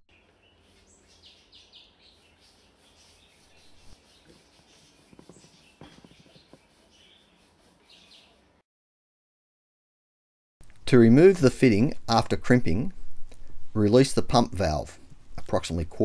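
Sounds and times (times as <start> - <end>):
faint bird chirps: 0.1 - 8.5.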